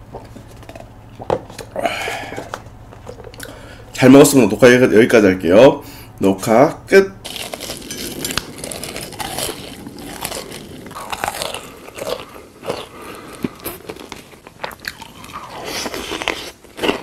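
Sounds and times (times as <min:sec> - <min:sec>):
person chewing crunchy food: 0:00.0 - 0:03.8, 0:07.2 - 0:17.0.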